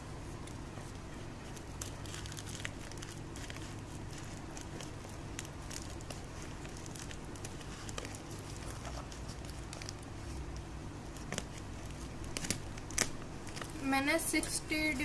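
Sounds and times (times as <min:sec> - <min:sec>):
plastic film crinkling: 0:00.4 - 0:15.0
scissors cutting plastic wrap: 0:01.5 - 0:10.5, 0:11.2 - 0:13.9.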